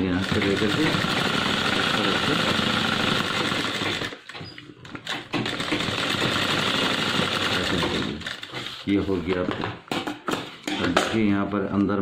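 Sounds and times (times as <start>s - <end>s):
sewing machine running: 0.0s - 4.3s, 5.0s - 8.5s.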